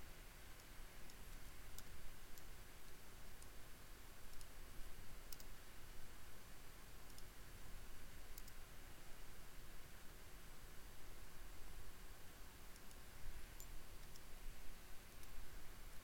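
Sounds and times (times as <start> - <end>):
low hum and hiss: 0.0 - 16.0
computer mouse clicks: 0.6 - 2.5, 4.3 - 4.6, 5.3 - 5.5, 7.0 - 7.3, 8.3 - 8.6, 12.7 - 13.0, 13.6 - 14.3.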